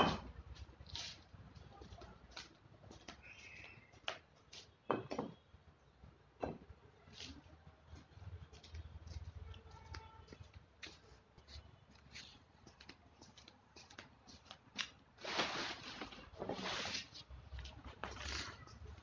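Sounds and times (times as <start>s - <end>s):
plastic sheeting rustling: 15.2s - 17.3s.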